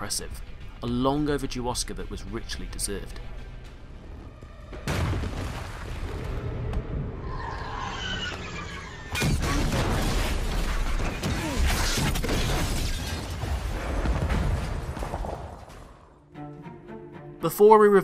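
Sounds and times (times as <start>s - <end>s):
glass and debris shattering: 9.2s - 13.8s.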